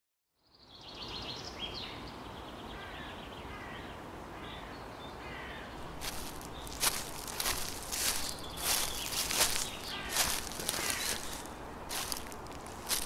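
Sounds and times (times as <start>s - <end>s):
steady background hiss: 0.6s - 13.0s
birds calling: 2.7s - 13.0s
rustling footsteps: 5.8s - 13.0s.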